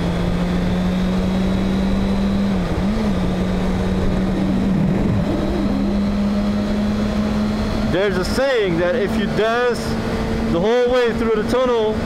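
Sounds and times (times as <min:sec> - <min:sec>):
motorcycle engine running: 0:00.0 - 0:12.0
wind rushing: 0:02.6 - 0:08.0.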